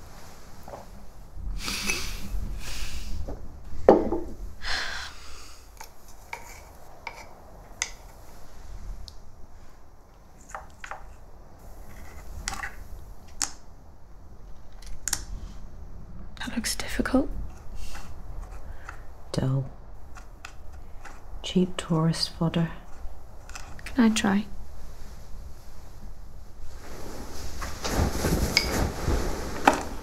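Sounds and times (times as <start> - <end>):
knock: 3.9 - 4.4
handling and rustling: 26.7 - 30.0.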